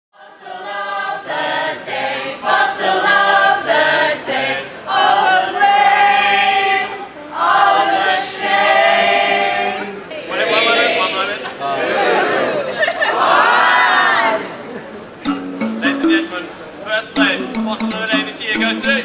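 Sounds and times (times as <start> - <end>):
group singing a cappella: 0.2 - 10.8.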